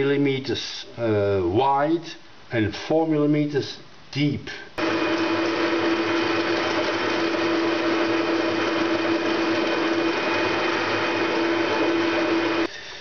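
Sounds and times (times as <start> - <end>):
metal lathe whine: 4.8 - 12.7.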